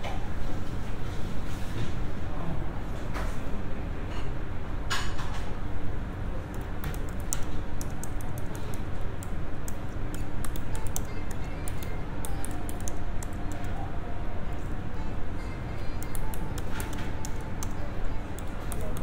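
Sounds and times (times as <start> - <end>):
low hum of machine and cafe: 0.0 - 19.0.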